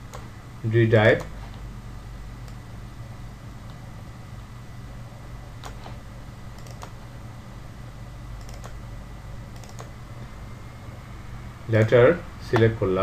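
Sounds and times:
computer mouse clicking: 0.0 - 0.3, 2.4 - 2.6, 5.6 - 5.9, 6.5 - 7.0, 8.4 - 8.8, 9.5 - 10.0
steady low hum: 0.0 - 13.0.

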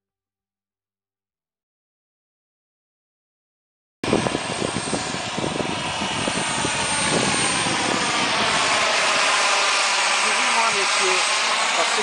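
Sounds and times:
model helicopter engine whine: 4.0 - 12.0.

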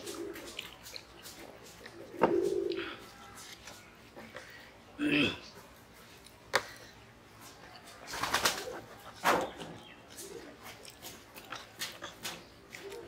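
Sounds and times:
dove cooing faintly: 0.0 - 4.5, 7.8 - 10.8, 12.0 - 13.0
hands mixing rice on steel plates: 0.0 - 8.1.

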